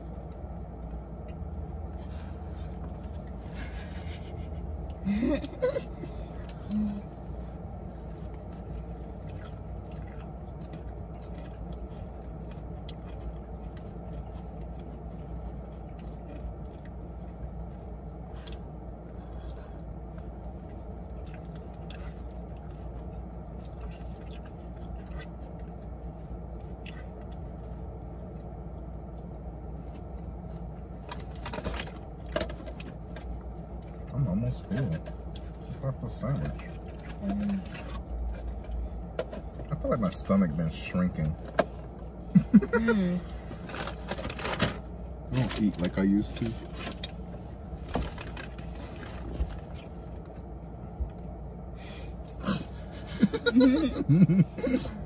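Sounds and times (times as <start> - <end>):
car interior engine hum: 0.0 - 55.0
plastic food containers rustling: 43.6 - 50.0.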